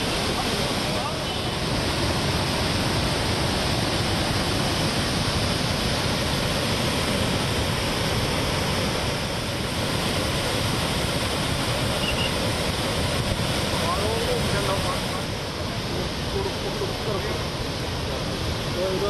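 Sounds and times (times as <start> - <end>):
floodwater rushing through rapids: 0.0 - 19.0.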